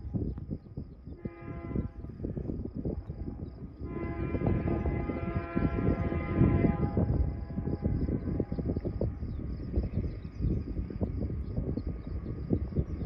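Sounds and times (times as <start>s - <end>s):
train low rumble: 0.0s - 13.0s
locomotive air horn: 1.2s - 2.1s, 3.8s - 8.6s.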